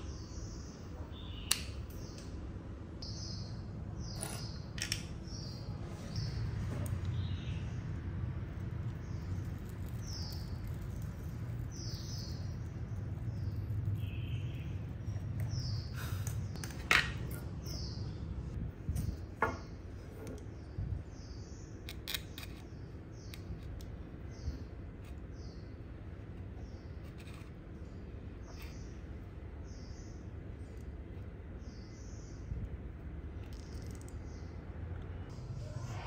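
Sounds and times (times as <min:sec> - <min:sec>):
bird chirping: 0:00.0 - 0:02.4, 0:03.0 - 0:16.6.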